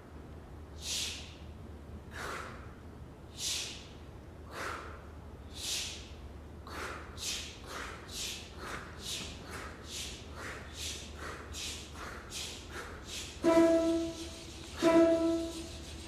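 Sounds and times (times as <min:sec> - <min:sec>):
choir making train-chugging sounds: 0:13.1 - 0:16.0.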